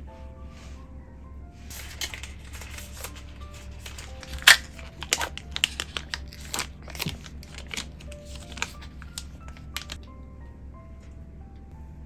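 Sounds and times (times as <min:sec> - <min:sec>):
soft background music: 0:00.0 - 0:12.0
plastic wrapping crinkling: 0:01.7 - 0:10.1.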